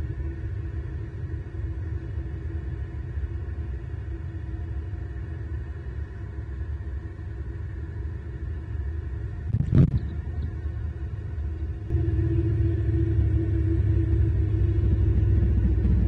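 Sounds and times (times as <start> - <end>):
road traffic rumble: 11.9 - 16.0.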